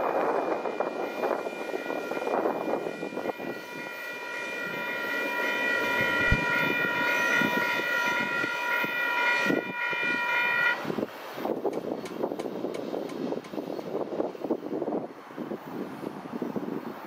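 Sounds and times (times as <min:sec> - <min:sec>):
freight train rumbling past: 0:00.0 - 0:17.0
locomotive air horn chord: 0:00.1 - 0:11.1.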